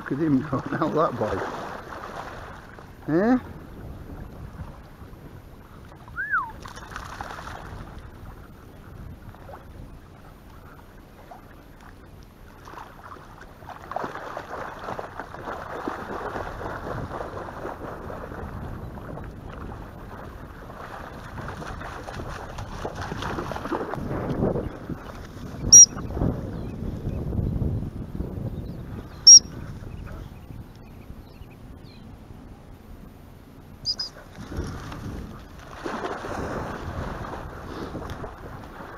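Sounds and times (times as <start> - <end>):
wind on microphone: 0.0 - 11.4, 13.8 - 32.6, 33.8 - 38.9
water splashing from dog swimming: 0.0 - 26.6, 34.0 - 38.9
short falling whistle: 6.2 - 6.6, 33.9 - 34.1.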